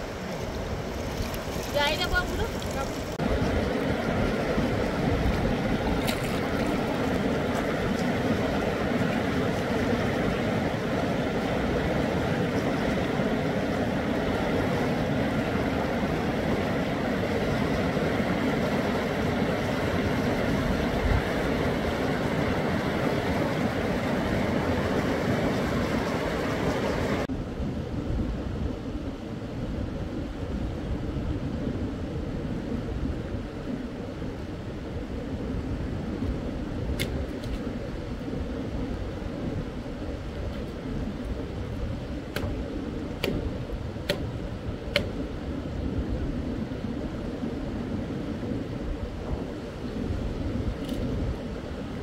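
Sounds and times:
river rushing over rapids: 0.0s - 27.3s.

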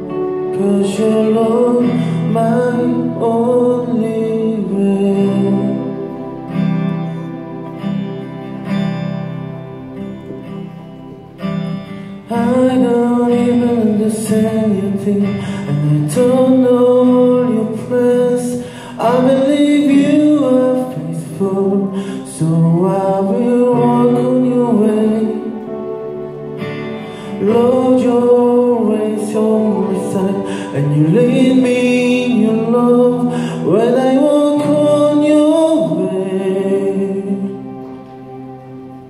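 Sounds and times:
man singing: 0.0s - 6.4s, 12.2s - 26.0s, 27.1s - 38.2s
acoustic guitar and keyboard: 0.0s - 39.0s.

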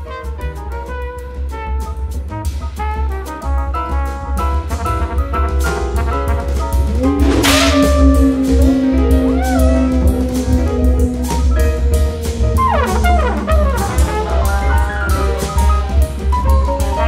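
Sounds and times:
drum and cymbal hits: 0.0s - 17.0s
low bass line: 4.3s - 17.0s
flugelhorn solo: 4.8s - 15.6s.

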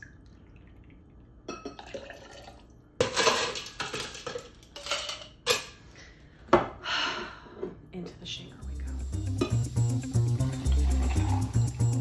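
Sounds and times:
ice cubes clattering in metal tin: 3.0s - 5.4s.

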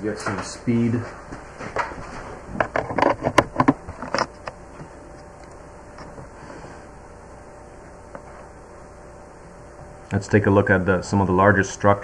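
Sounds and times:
faint electrical hum: 0.0s - 12.0s
clicks and knocks at a desk: 1.6s - 4.6s.

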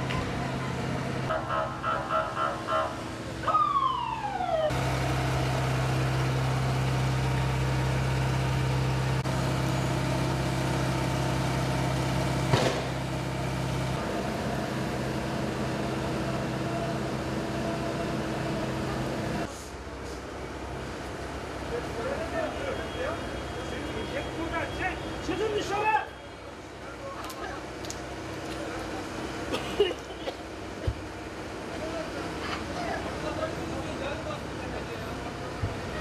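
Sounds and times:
heavy vehicle engine humming: 0.0s - 36.0s
police siren: 1.3s - 4.8s.

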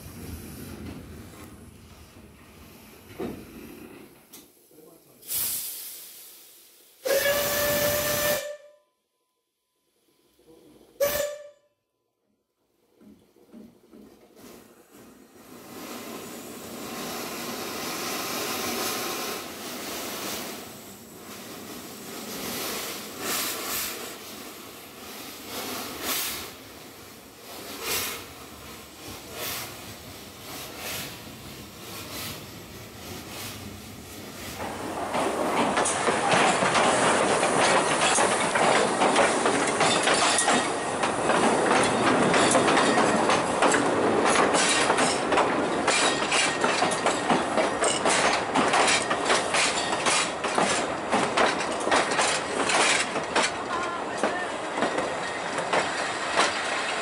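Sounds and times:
steam locomotive hissing: 0.0s - 8.6s, 10.4s - 11.5s, 14.4s - 57.0s
train carriages rattling on track: 34.3s - 57.0s.

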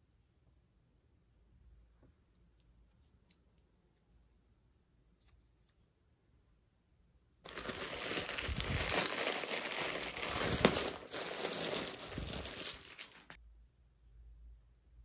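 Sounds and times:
plastic bag crinkling: 7.5s - 13.4s.

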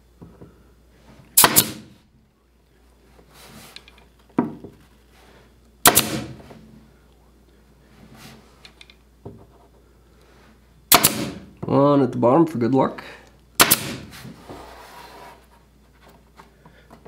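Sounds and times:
pin nailer pops with hiss: 1.4s - 1.8s, 5.8s - 6.3s, 10.9s - 11.4s, 13.6s - 14.1s.

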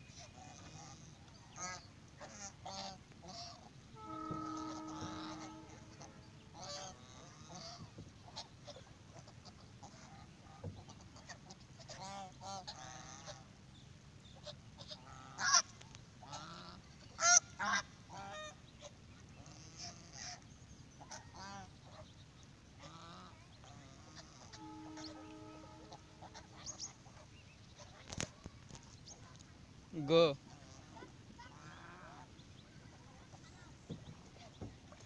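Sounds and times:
geese honking: 0.4s - 13.4s, 22.8s - 28.0s.

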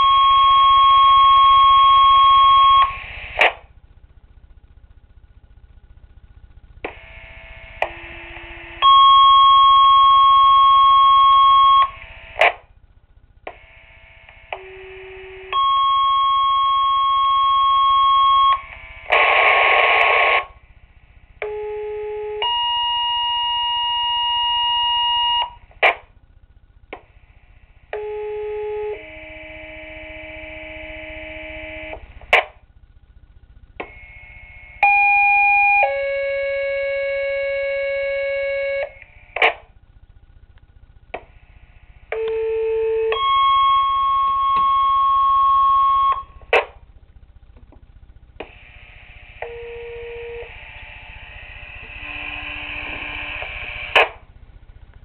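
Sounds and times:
speaker crackle: 0.0s - 55.0s
two-tone pager tones: 8.8s - 11.9s, 14.6s - 18.6s, 42.2s - 46.3s.

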